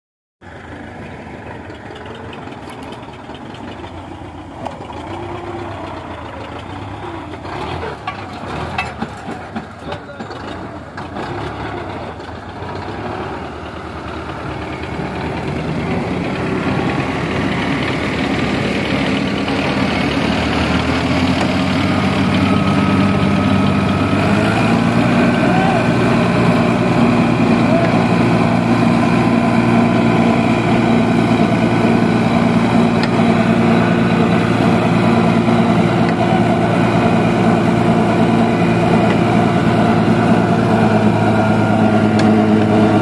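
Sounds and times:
diesel tractor engines running: 0.4 - 43.0
brick-making machine working: 4.6 - 12.8, 14.2 - 43.0
knocks and clatter: 7.4 - 11.6.

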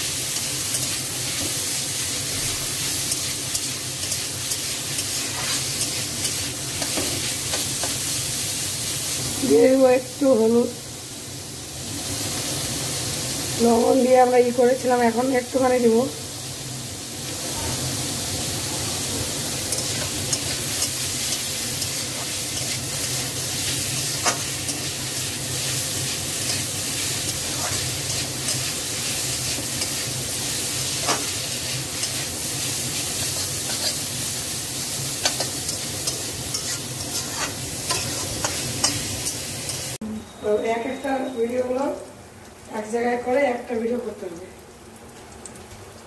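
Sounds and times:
vegetables sizzling in oil: 0.0 - 46.0
metal spatula scraping pan: 35.2 - 39.8.

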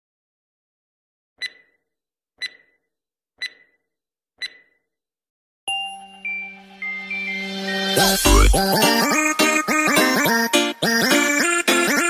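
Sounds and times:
sharp electronic ticks: 1.4 - 1.7, 2.4 - 2.7, 3.4 - 3.7, 4.4 - 4.7
intro music: 5.7 - 10.8.

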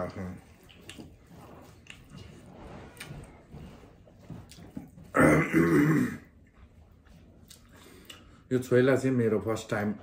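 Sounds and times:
soft eating sounds: 0.0 - 9.7
man clearing his throat: 5.1 - 6.3.

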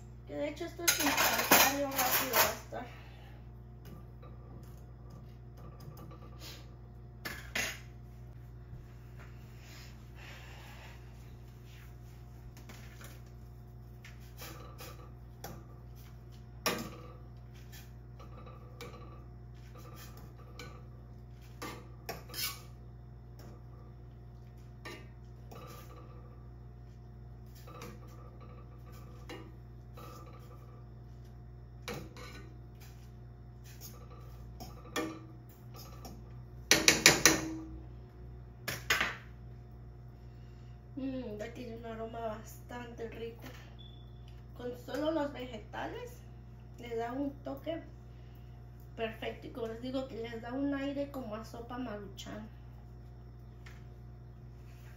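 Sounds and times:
steady low hum: 0.0 - 54.9.

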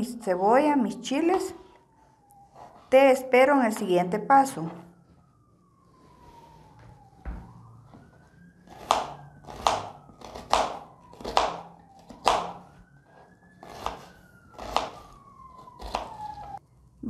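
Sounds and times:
siren wailing: 0.0 - 17.0
knife chopping onion on board: 8.7 - 12.7, 13.6 - 15.0, 15.8 - 16.4.

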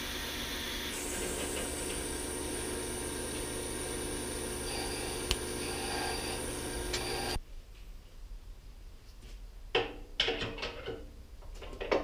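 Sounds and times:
workshop machine humming: 0.0 - 7.4.

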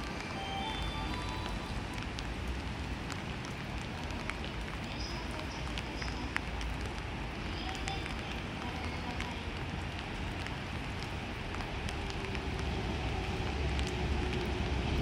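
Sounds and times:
low city rumble: 0.0 - 15.0
brief high tones: 0.3 - 1.8.

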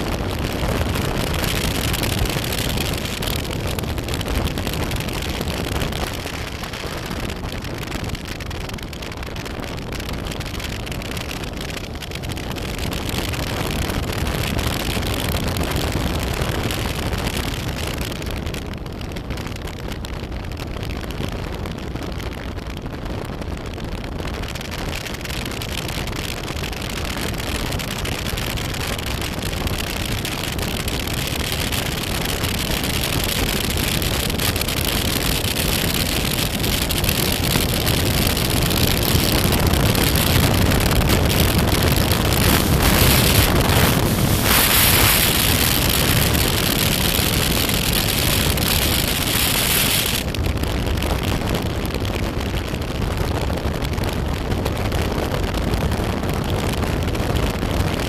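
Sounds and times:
wind noise on microphone: 0.0 - 58.0
motorcycle engine drone: 33.2 - 50.8.

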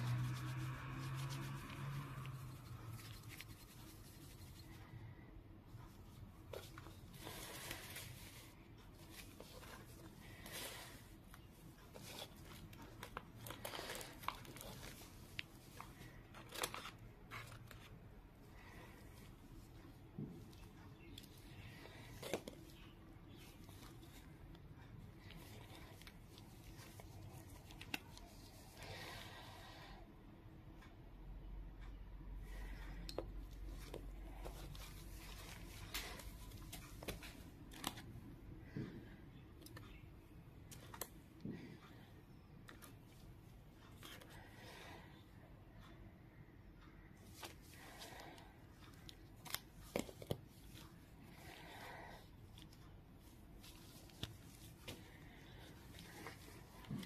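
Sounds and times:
gloved fingers rubbing and rustling: 0.0 - 29.3, 33.4 - 38.3, 47.2 - 57.0
low steady hum: 0.0 - 57.0
paper rustling: 11.8 - 18.0.

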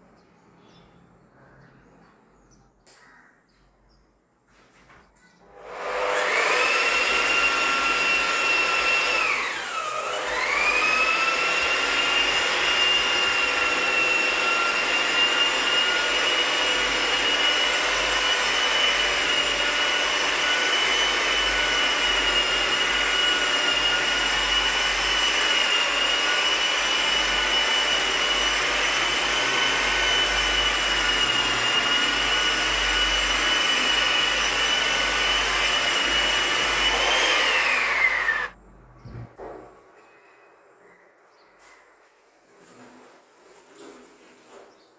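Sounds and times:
wall sander motor whine: 5.5 - 38.6.

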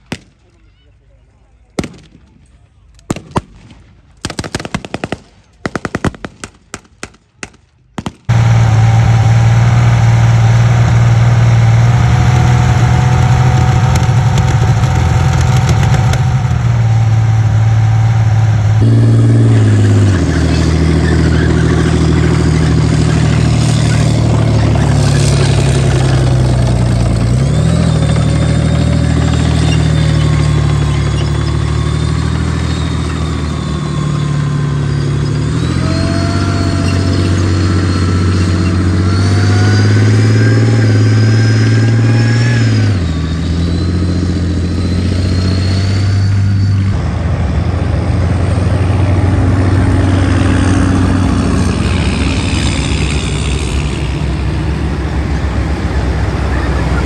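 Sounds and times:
tank engine running steadily: 0.0 - 57.0
rifle shots: 3.1 - 8.3
diesel tank engine revving: 8.2 - 57.0.

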